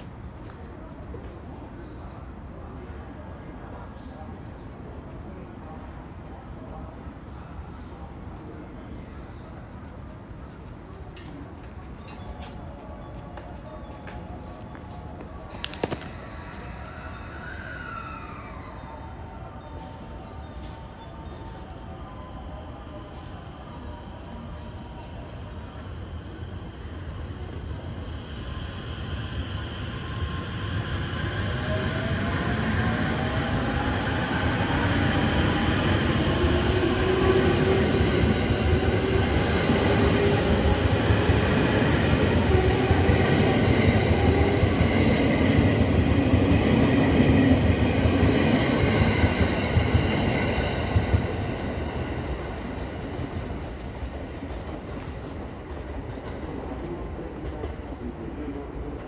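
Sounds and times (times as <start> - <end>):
train wheels rumbling: 23.8 - 59.0.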